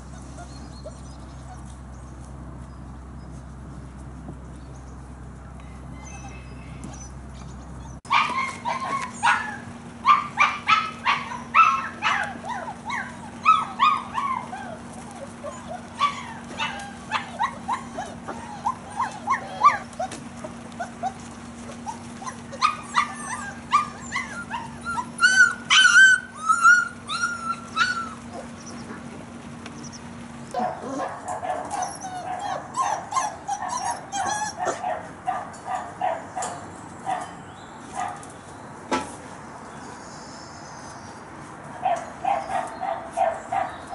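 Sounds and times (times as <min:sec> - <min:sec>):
puppies yelping and squealing: 0:00.0 - 0:01.8, 0:05.9 - 0:29.1, 0:29.8 - 0:34.8
puppies yipping and whimpering: 0:00.0 - 0:01.9, 0:05.9 - 0:29.1, 0:29.8 - 0:35.0.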